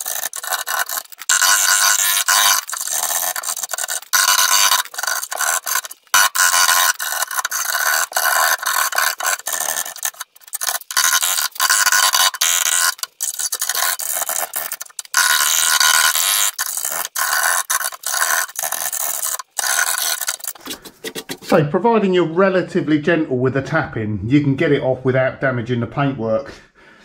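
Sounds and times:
scraper scraping steel: 0.0s - 21.6s.

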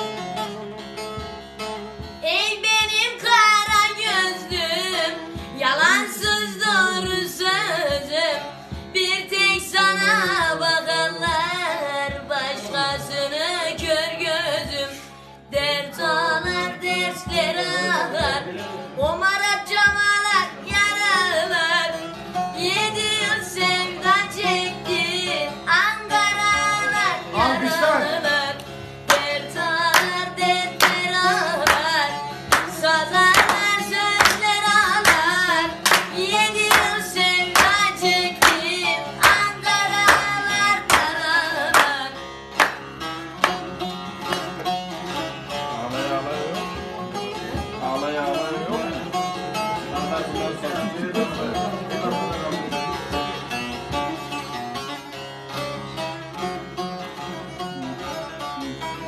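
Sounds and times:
lute strummed and plucked: 0.0s - 59.0s
boy singing: 2.2s - 22.0s, 22.6s - 42.1s
hands clapping: 28.6s - 44.8s.

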